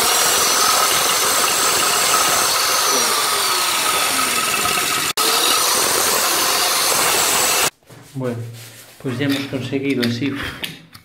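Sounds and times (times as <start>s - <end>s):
electric drill grinding ceramic: 0.0s - 7.7s.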